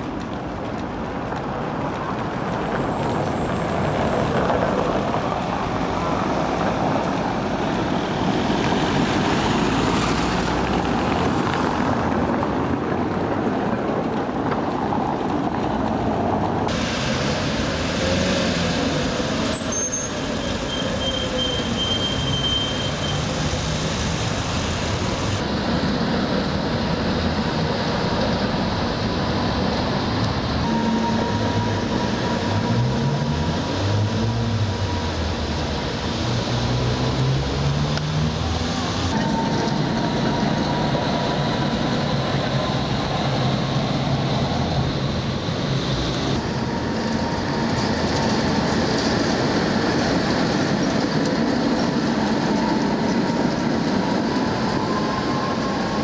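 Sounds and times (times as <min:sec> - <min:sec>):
city traffic: 0:00.0 - 0:56.0
trams running on street track: 0:00.0 - 0:56.0.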